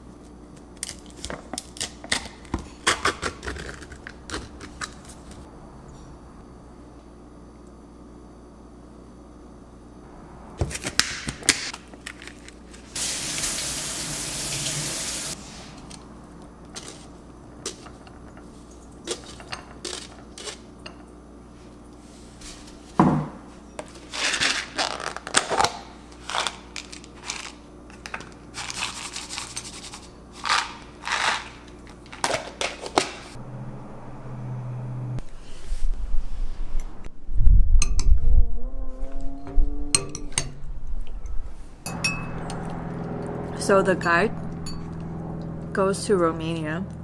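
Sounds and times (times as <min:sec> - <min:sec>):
water running: 0:12.9 - 0:15.4.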